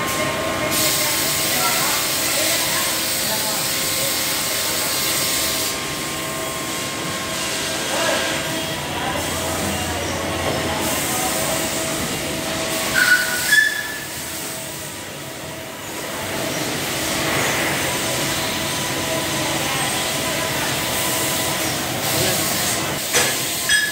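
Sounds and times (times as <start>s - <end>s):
coolant spray: 0.6s - 6.0s, 10.8s - 14.9s, 20.5s - 23.9s
high squeals: 12.9s - 14.2s.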